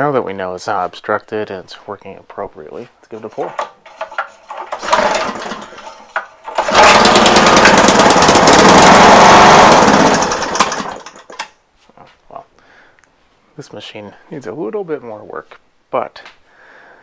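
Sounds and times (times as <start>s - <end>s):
recoil starter pull: 3.2s - 11.5s
small engine running: 4.7s - 11.3s.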